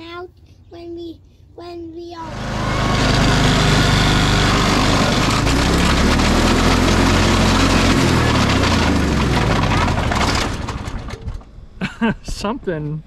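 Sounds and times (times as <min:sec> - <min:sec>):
riding lawn mower engine running: 0:02.2 - 0:11.4.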